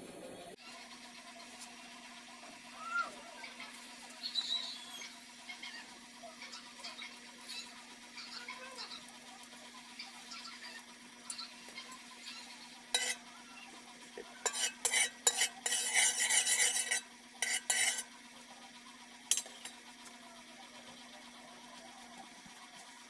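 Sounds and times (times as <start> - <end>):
metal tongs scraping a wok: 12.8 - 13.3, 14.3 - 18.1, 19.3 - 19.8.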